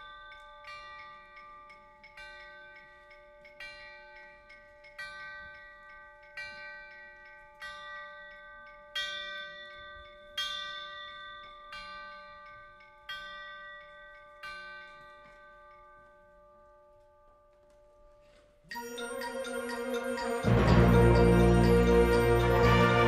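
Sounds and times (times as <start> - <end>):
bells struck slowly: 0.0 - 23.0
wind band playing: 18.8 - 23.0.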